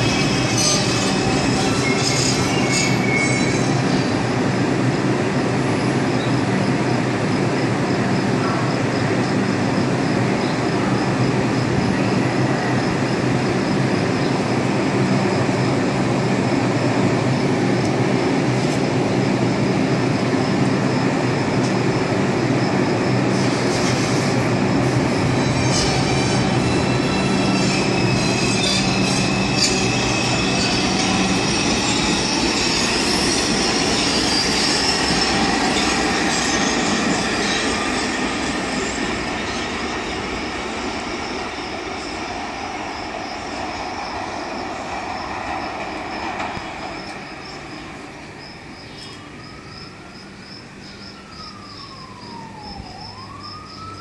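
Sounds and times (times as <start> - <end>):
wheel squeal on rails: 0.0 - 4.2, 23.3 - 41.0
subway train low hum: 0.0 - 54.0.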